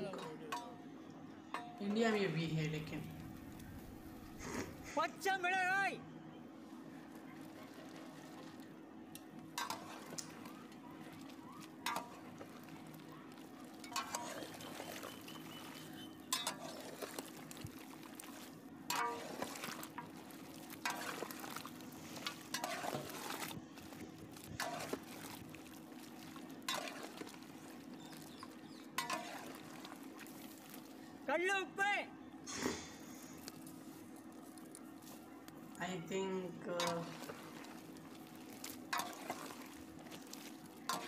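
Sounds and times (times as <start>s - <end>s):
metal ladle clinking in a pot: 13.8s - 14.8s, 16.3s - 16.9s, 18.9s - 20.2s.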